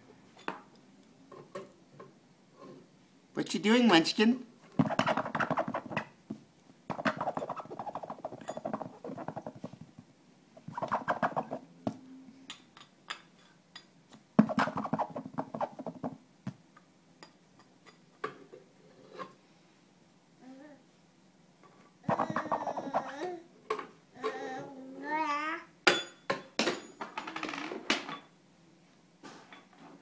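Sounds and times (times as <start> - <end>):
baby making buzzy pulsing sounds: 22.0 - 23.5.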